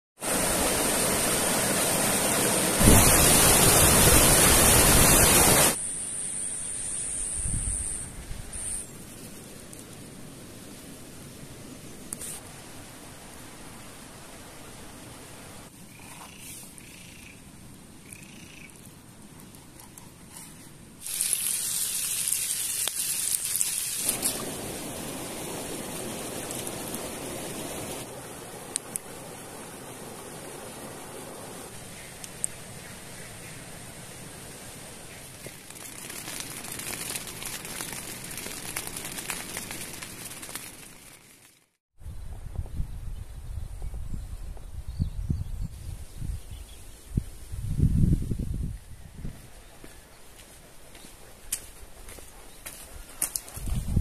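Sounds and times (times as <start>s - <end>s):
river water rushing over boulders: 0.2s - 5.8s
fish sizzling in a frying pan: 21.0s - 24.5s.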